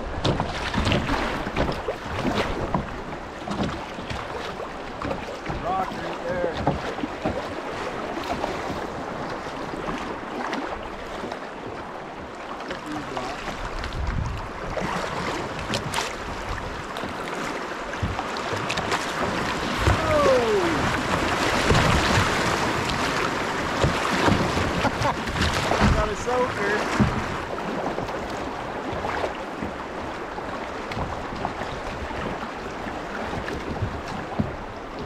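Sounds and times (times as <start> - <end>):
water sloshing around a kayak: 0.0 - 35.0
wind buffeting microphone: 13.6 - 16.9.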